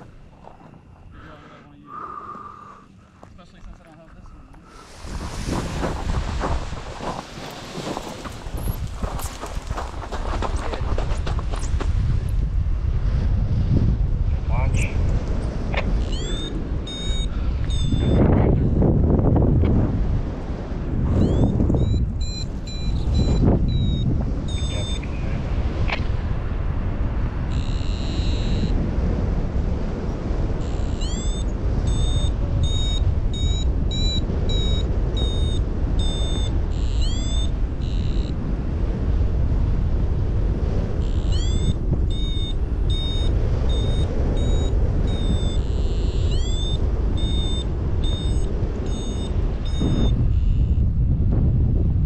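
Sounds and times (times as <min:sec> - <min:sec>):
wind noise on microphone: 0:02.8 - 0:52.0
variometer beeping: 0:15.8 - 0:18.8, 0:21.2 - 0:25.2, 0:27.5 - 0:28.8, 0:30.6 - 0:38.4, 0:41.0 - 0:50.8.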